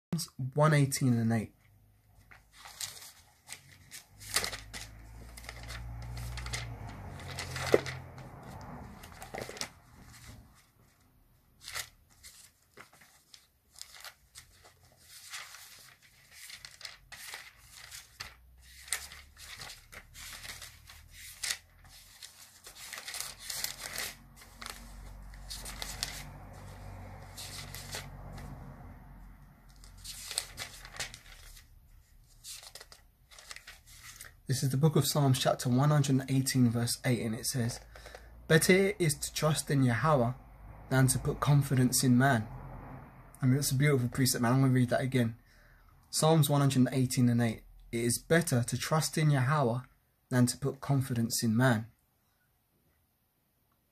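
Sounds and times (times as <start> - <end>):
thin pages rustling: 2.1 - 28.5, 29.7 - 34.4.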